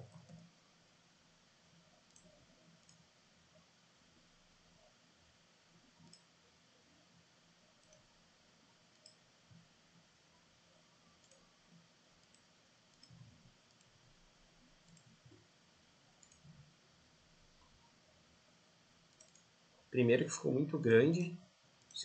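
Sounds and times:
computer mouse clicks: 0.0s - 0.5s, 2.1s - 3.0s, 6.0s - 6.3s, 7.8s - 8.1s, 8.9s - 9.2s, 11.2s - 11.4s, 12.2s - 14.0s, 14.8s - 15.4s, 16.2s - 16.6s, 19.1s - 19.6s.

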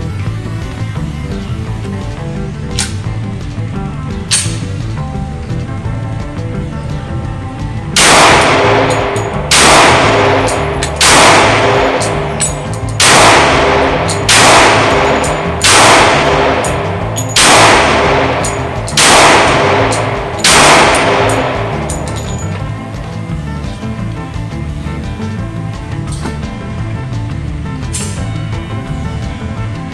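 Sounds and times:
pistol shots echoing indoors: 8.0s - 23.0s.

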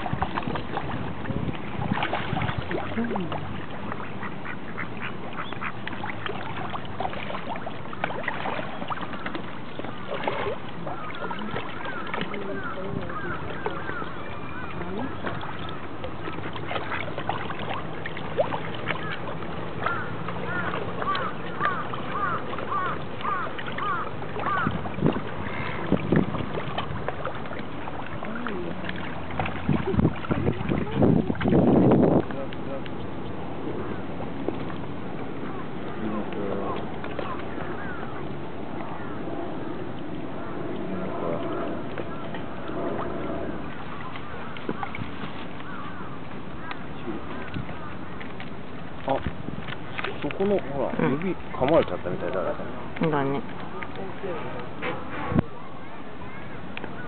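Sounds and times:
water splashing and slapping: 0.0s - 57.0s
wind: 0.0s - 57.0s
ducks quacking: 2.6s - 6.5s, 8.5s - 17.6s, 18.9s - 24.8s, 35.4s - 38.3s.

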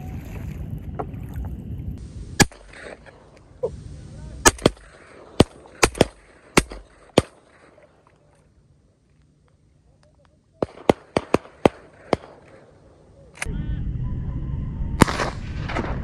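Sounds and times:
low rushing noise: 0.0s - 7.1s
shotgun shots: 2.4s - 3.1s, 4.4s - 8.0s, 10.6s - 13.5s, 15.0s - 16.0s.

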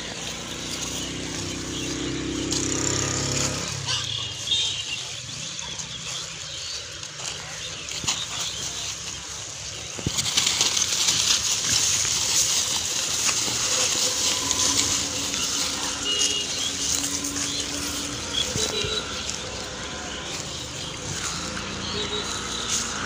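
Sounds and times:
plastic bags rustling and crackling: 5.8s - 23.0s.

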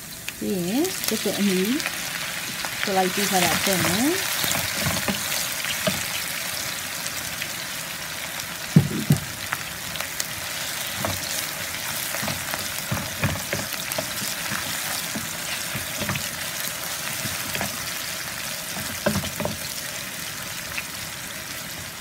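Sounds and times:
onions sizzling in oil: 0.0s - 22.0s
spatula scraping and knocking pan: 3.3s - 6.2s, 10.8s - 18.0s, 18.7s - 19.7s.

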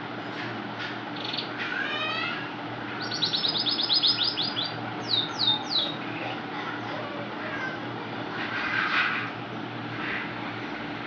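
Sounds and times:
faint steady hum: 0.0s - 11.0s
canary singing: 1.1s - 6.0s.

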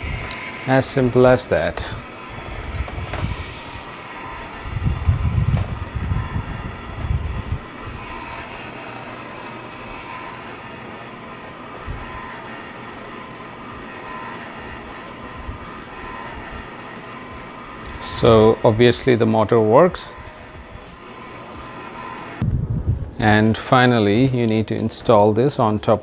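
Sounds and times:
small electric motor running: 0.0s - 24.6s
low rumbling handling bumps: 2.4s - 3.6s, 4.6s - 8.1s.

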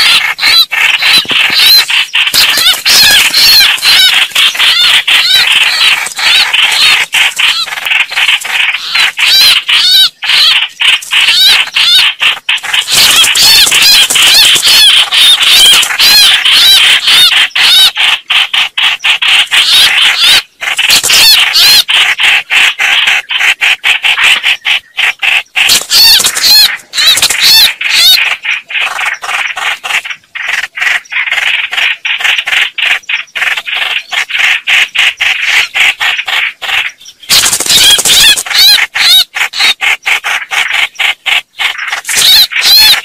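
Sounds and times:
bulbuls chattering and warbling: 0.0s - 43.0s.

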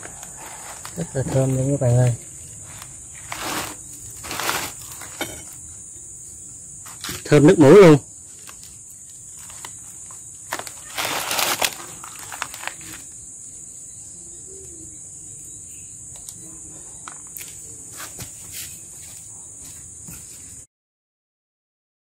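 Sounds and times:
rustling and cracking: 0.0s - 5.6s, 8.3s - 13.2s.

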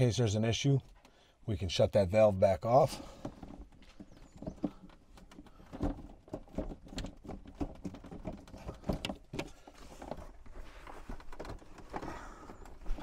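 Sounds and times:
hose fittings knocking and clicking: 3.2s - 13.0s.

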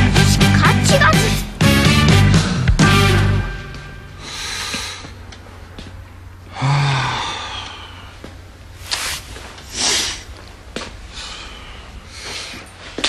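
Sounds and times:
soft breaths: 4.2s - 13.0s
man sighing heavily: 6.5s - 8.1s.

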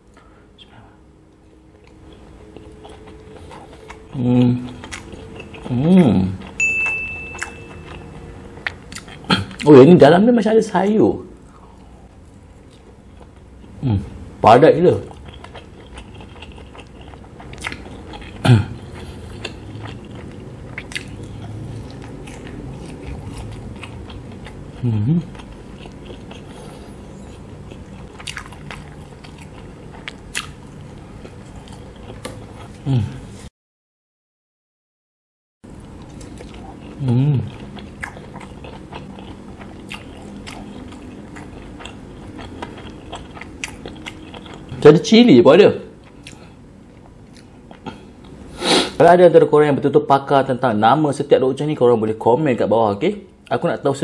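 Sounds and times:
chewing and biting food: 1.7s - 6.6s, 7.2s - 9.8s, 14.9s - 33.0s, 35.8s - 45.1s, 45.9s - 48.5s.

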